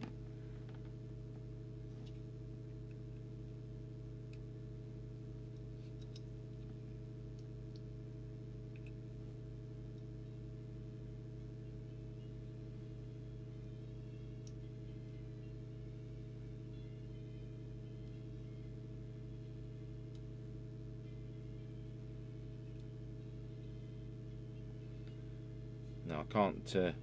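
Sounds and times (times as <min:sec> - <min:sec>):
mains hum: 0:00.0 - 0:27.0.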